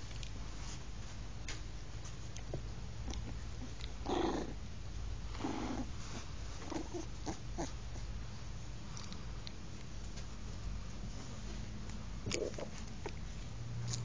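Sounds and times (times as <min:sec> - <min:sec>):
puppies growling: 0:03.0 - 0:04.7, 0:05.3 - 0:08.2, 0:12.2 - 0:13.2.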